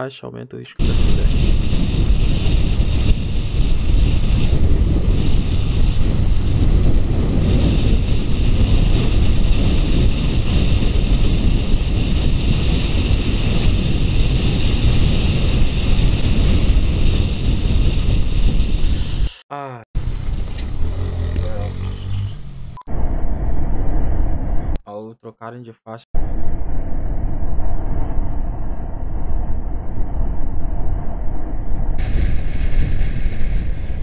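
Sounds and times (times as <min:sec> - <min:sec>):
wind rushing over microphone: 0:00.8 - 0:19.4, 0:20.0 - 0:24.8, 0:26.2 - 0:34.0
motorcycle engine and road noise: 0:01.1 - 0:18.8, 0:20.0 - 0:24.7.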